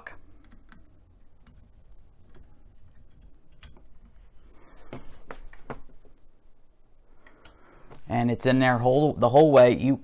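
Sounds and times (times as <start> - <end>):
small metal parts clicking: 0.4 - 3.9.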